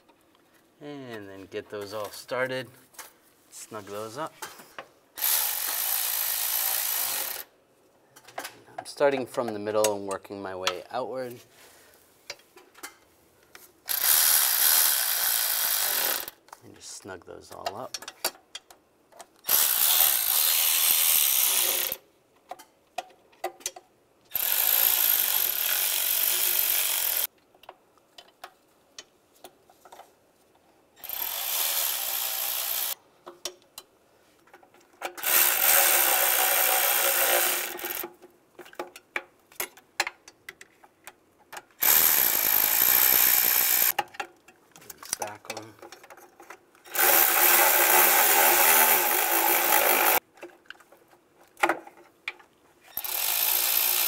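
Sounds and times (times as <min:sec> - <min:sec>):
power driver running bolts: 0:35.2 - 0:38.1, 0:41.8 - 0:44.0, 0:46.9 - 0:50.2.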